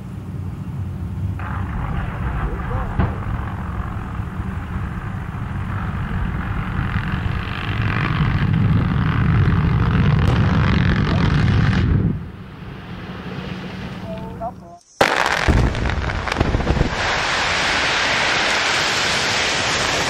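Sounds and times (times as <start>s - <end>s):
low rumble of blast: 0.0s - 14.2s, 15.0s - 20.0s
explosive bang: 1.4s - 12.3s, 15.0s - 18.4s.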